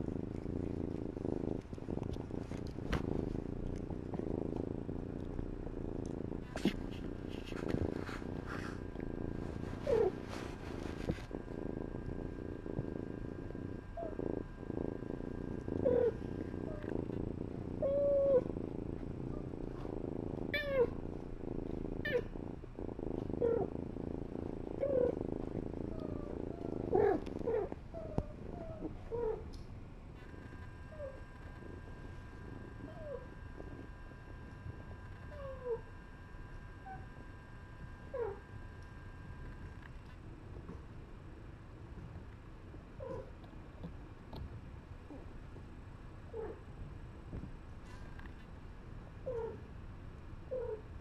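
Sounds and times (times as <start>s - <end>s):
fur brushing microphone: 0.0s - 29.5s
cat purring: 0.0s - 51.0s.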